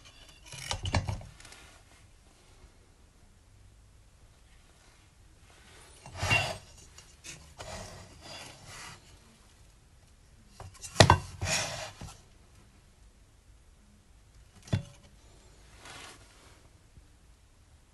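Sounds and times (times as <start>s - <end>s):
plastic rubbing and scraping: 6.0s - 9.1s.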